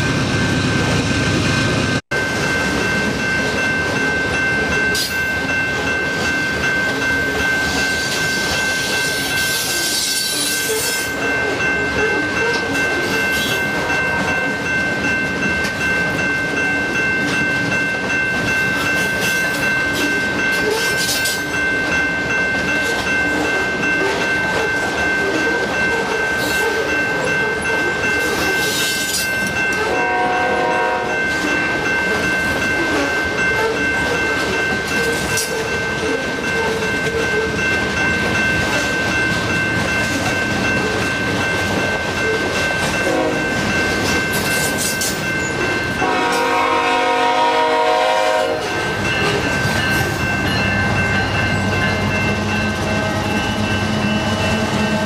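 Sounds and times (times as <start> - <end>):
train wheels clacking on rails: 0.8 - 55.0
locomotive air horn: 29.9 - 31.1, 43.1 - 43.4, 46.0 - 48.6.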